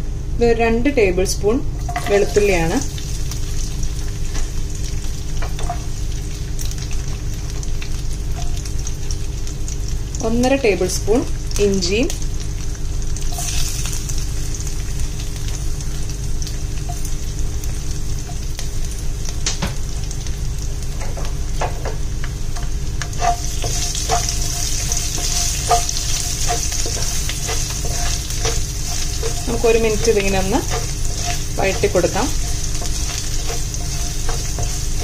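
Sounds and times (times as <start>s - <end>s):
garlic and ginger sizzling in oil: 1.0s - 35.0s
spatula scraping and tapping pan: 22.6s - 35.0s.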